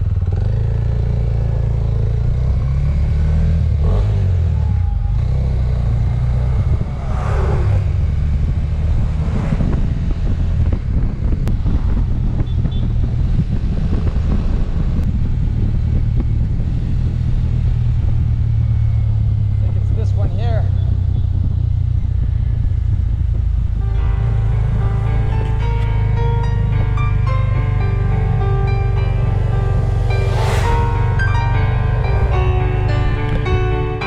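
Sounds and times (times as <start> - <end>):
motorcycle engine running: 0.0 - 7.0, 7.8 - 34.0
road and wind noise: 0.0 - 34.0
bus passing: 3.3 - 11.3, 19.0 - 34.0.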